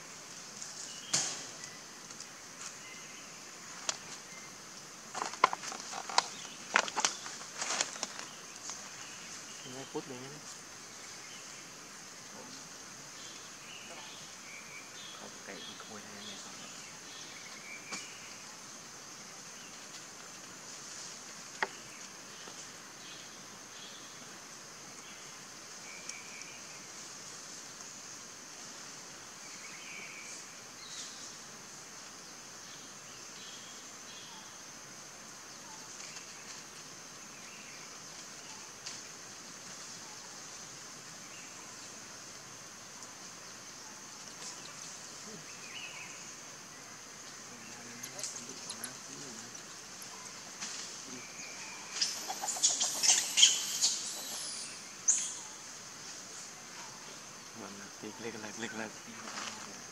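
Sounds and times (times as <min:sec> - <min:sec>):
small ticks and rustles: 0:00.1 - 0:15.1, 0:15.8 - 0:32.8, 0:35.2 - 0:51.2, 0:58.5 - 0:59.9
faint bird chirps: 0:47.4 - 0:55.8.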